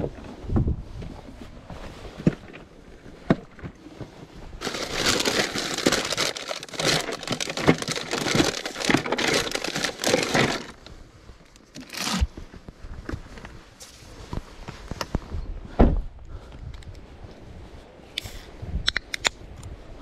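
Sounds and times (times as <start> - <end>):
crinkling rustling: 1.8 - 15.0.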